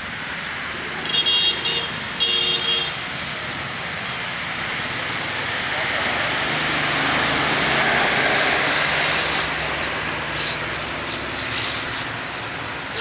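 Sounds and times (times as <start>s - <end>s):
vehicle passing close by: 2.9s - 13.0s.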